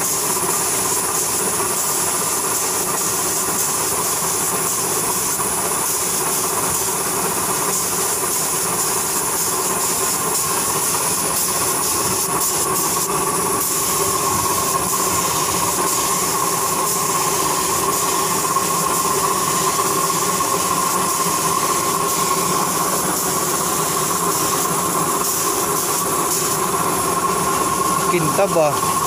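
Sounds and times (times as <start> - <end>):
spray gun hissing: 0.0 - 29.0
compressed-air equipment droning: 8.4 - 29.0.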